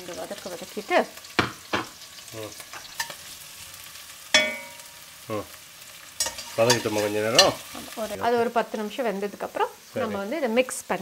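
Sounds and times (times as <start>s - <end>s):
onions sizzling in oil: 0.0s - 11.0s
spoon knocking and scraping pot: 1.4s - 2.0s, 4.3s - 4.9s.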